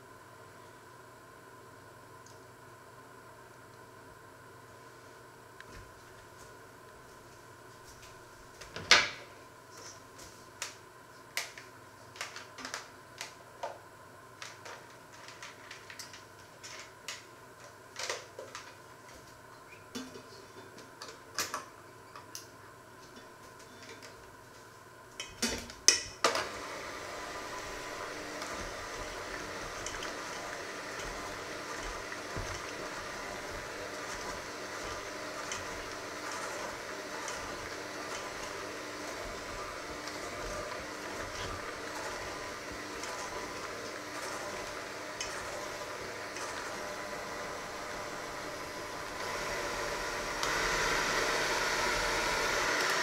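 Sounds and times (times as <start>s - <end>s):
electric mixer kneading dough: 26.3s - 53.0s.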